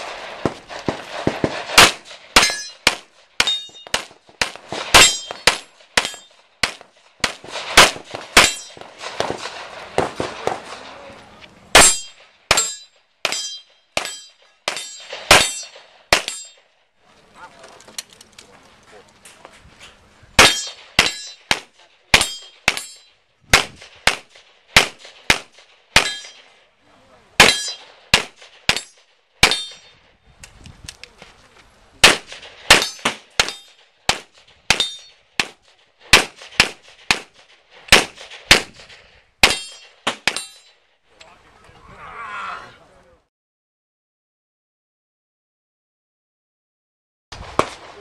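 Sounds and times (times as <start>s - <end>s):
pistol shots: 0.0s - 11.1s, 11.7s - 16.6s, 20.4s - 26.5s, 27.4s - 29.9s, 32.0s - 40.6s, 47.4s - 48.0s
metallic ringing: 2.4s - 2.8s, 3.4s - 4.0s, 5.0s - 6.4s, 8.4s - 8.8s, 11.8s - 16.6s, 20.4s - 21.5s, 22.2s - 23.2s, 34.8s - 35.2s, 39.5s - 40.8s.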